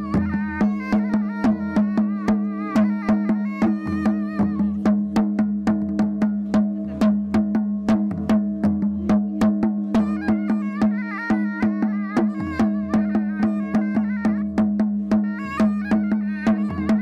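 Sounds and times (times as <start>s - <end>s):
wavering melody: 0.0s - 5.7s, 9.1s - 17.0s
drumbeats: 0.0s - 17.0s.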